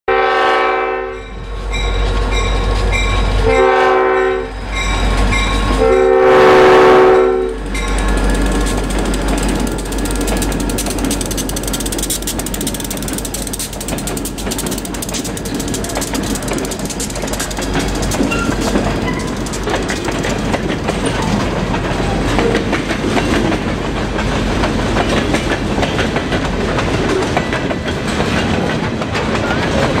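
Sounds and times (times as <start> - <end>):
diesel locomotive passing: 0.1 - 30.0
train wheels clattering: 4.7 - 30.0.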